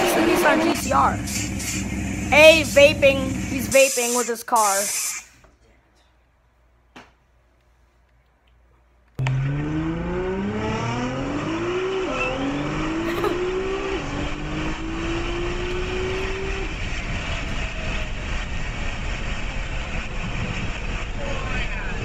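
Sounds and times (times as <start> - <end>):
car engine accelerating hard: 0.0 - 3.7, 9.2 - 22.0
road noise: 0.0 - 4.0, 9.2 - 22.0.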